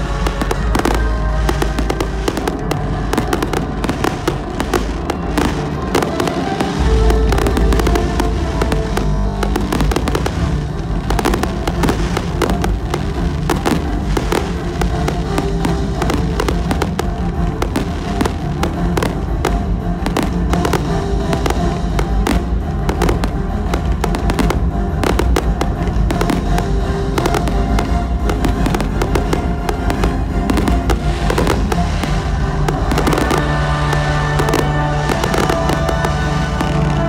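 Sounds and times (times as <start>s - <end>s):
fireworks bangs and crackles: 0.0s - 37.0s
music playing: 0.0s - 37.0s.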